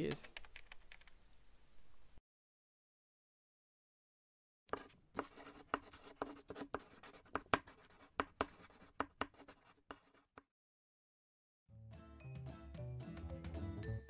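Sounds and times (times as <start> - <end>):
pen scratching while writing: 4.7 - 10.5.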